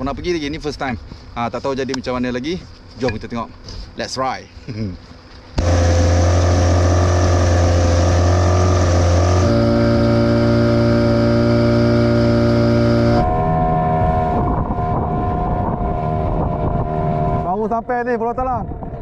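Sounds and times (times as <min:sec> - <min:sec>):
outboard motor running: 0:04.8 - 0:17.8.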